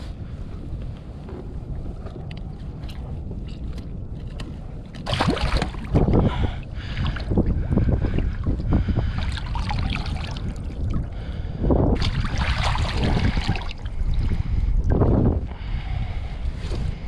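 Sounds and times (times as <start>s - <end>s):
wind buffeting microphone: 0.0s - 17.0s
water splashing and dribbling: 4.2s - 11.1s, 12.0s - 15.1s.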